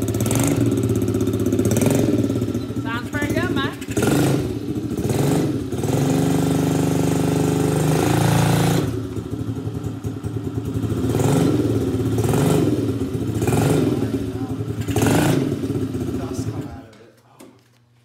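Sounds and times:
go-kart engine revving: 0.0s - 16.8s.

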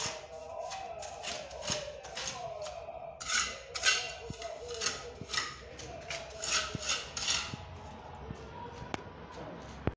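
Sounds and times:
trowel scraping mortar on wall: 0.0s - 7.7s.

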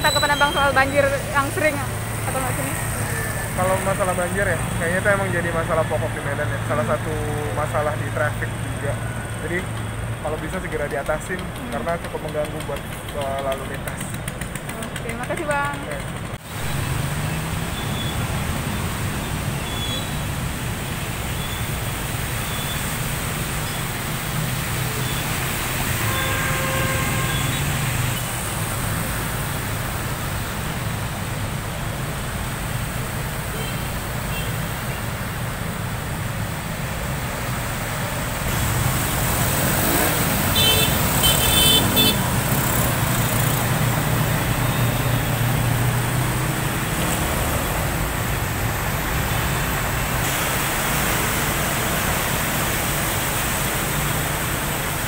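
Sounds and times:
vehicles driving through water: 0.0s - 55.0s
car horn: 25.9s - 28.3s, 39.8s - 42.6s.

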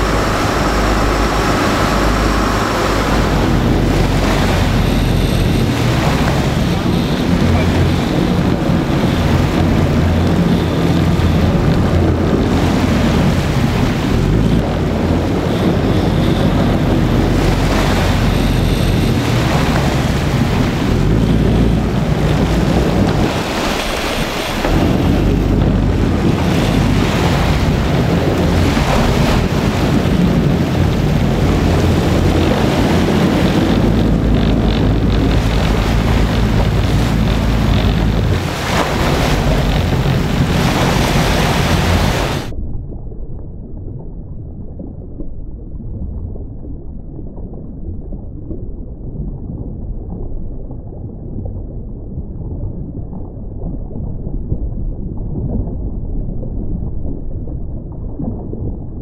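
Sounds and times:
boat engine running: 0.0s - 42.5s
waves rushing: 0.0s - 42.5s
wind buffeting microphone: 0.0s - 43.7s.

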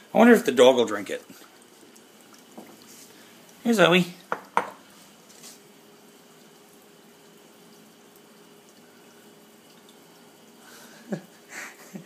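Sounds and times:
dry ice bubbling in water: 0.1s - 11.4s.

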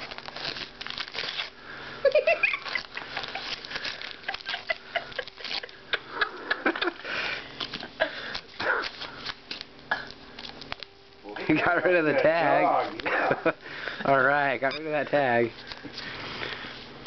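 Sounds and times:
dog tearing wrapping paper: 0.0s - 5.8s, 7.6s - 9.7s.

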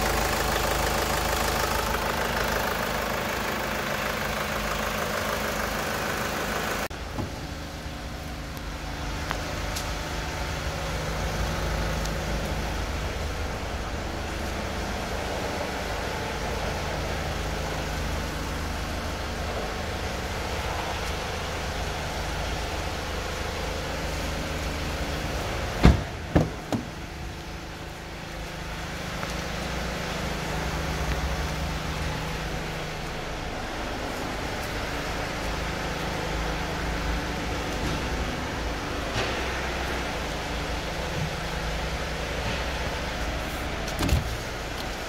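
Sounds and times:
car engine idling: 0.0s - 45.0s
car door shutting: 25.8s - 27.0s, 43.8s - 44.5s.

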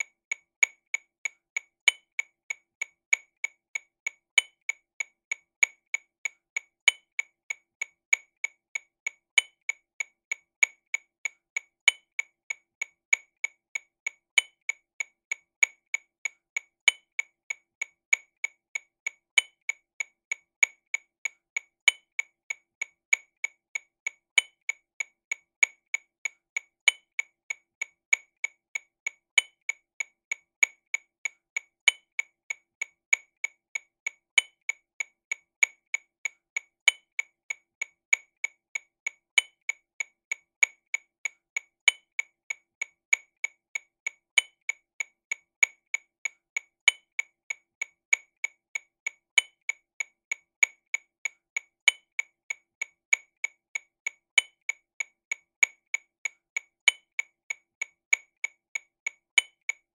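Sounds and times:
metronome clicking: 41.8s - 42.2s, 46.8s - 47.2s, 51.8s - 52.2s, 56.8s - 57.2s.

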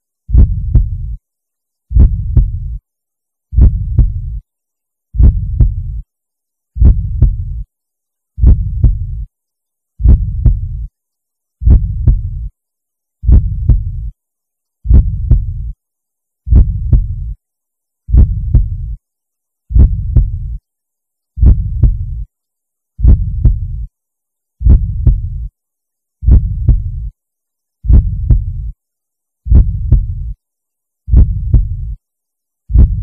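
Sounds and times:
heartbeat double beats: 0.3s - 1.2s, 1.9s - 2.8s, 3.5s - 4.4s, 5.2s - 6.0s, 6.8s - 7.6s, 8.4s - 9.3s, 10.0s - 10.9s, 11.6s - 12.5s, 13.2s - 14.1s, 14.9s - 15.7s, 16.5s - 17.4s, 18.1s - 19.0s, 19.7s - 20.6s, 21.4s - 22.2s, 23.0s - 23.9s, 24.6s - 25.5s, 26.2s - 27.1s, 27.8s - 28.7s, 29.5s - 30.4s, 31.1s - 32.0s, 32.7s - 33.0s.

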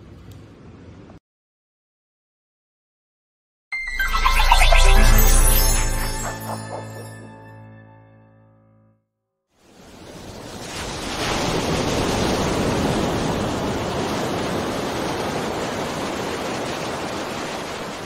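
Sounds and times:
ocean surf washing onto beach: 9.6s - 18.0s.

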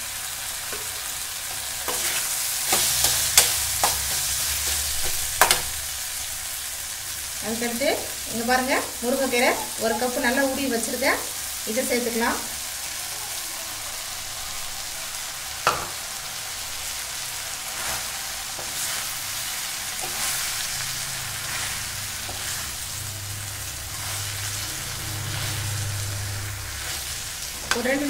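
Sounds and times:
leaves sizzling in a pan: 0.0s - 28.0s
steel spoon scraping: 1.8s - 5.7s
spoon clacking on pan: 1.9s - 5.8s, 15.6s - 16.0s.

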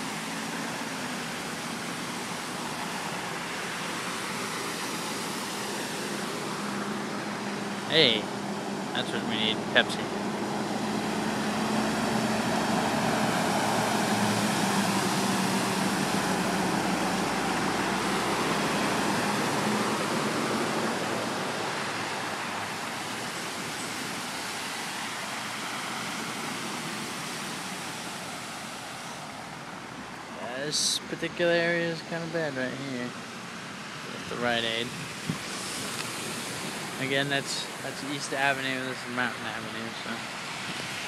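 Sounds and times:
low engine hum: 0.0s - 41.0s
water spray from tyres: 10.6s - 29.5s, 34.7s - 41.0s.

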